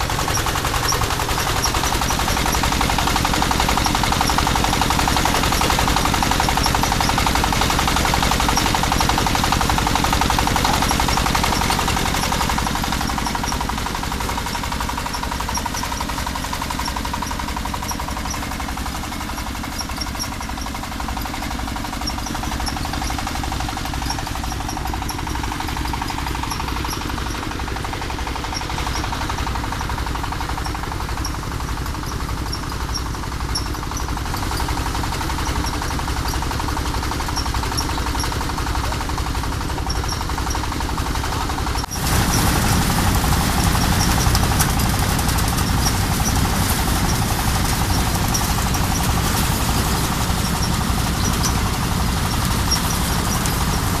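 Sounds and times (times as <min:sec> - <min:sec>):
threshing machine engine drone: 0:00.0 - 0:54.0.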